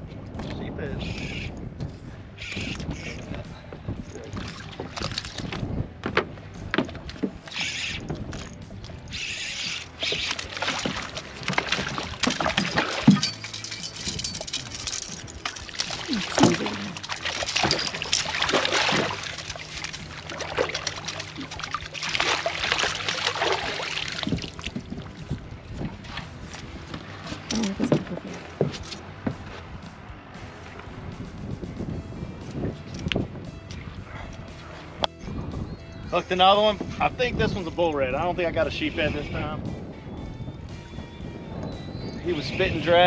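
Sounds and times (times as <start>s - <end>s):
water splashing against boat hull: 4.3s - 29.6s
fish thrashing in net: 10.0s - 24.9s.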